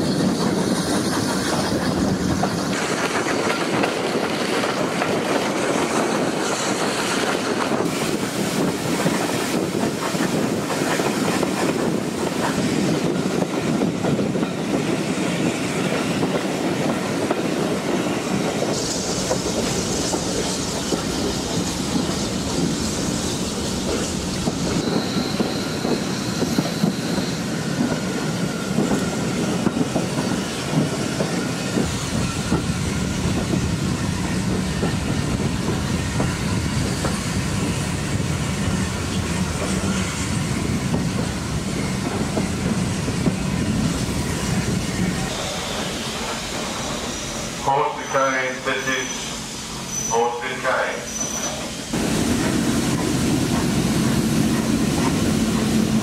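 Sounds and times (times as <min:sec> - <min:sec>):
train coaches rumbling: 0:00.0 - 0:56.0
wheels clacking over rail joints: 0:00.2 - 0:14.4
high squeal: 0:18.3 - 0:29.5, 0:43.4 - 0:51.9.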